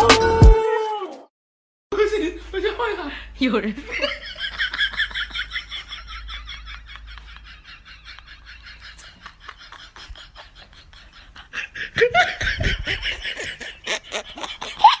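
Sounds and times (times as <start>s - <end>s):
person laughing hard: 4.0s - 15.0s.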